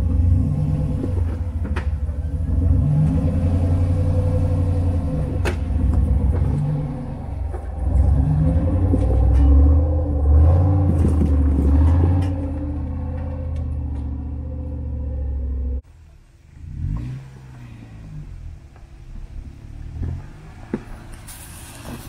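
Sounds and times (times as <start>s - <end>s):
engine working under load: 0.0s - 15.8s.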